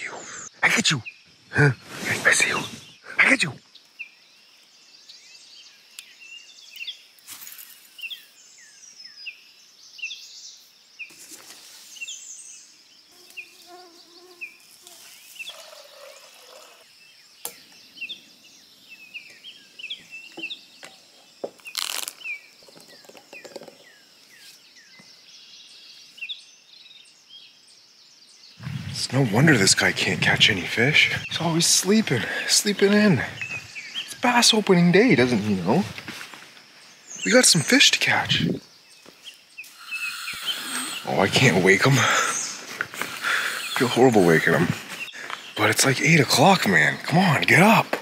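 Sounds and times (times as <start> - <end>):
birds chirping: 0.0 - 48.0.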